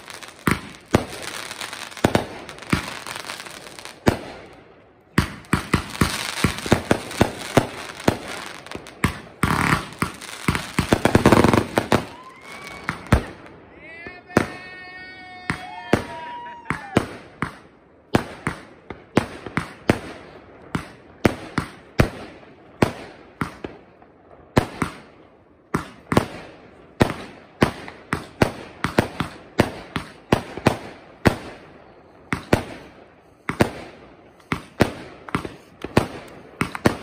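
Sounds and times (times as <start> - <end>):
fireworks bangs: 0.0 - 14.8, 25.8 - 37.0.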